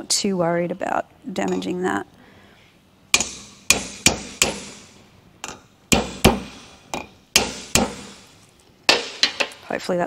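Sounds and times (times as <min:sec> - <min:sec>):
hammer tapping on steel: 0:03.2 - 0:08.3.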